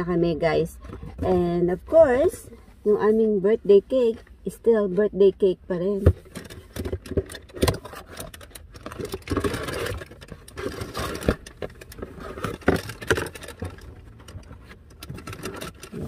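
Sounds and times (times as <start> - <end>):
paper rustling and scraping: 7.7 - 16.0.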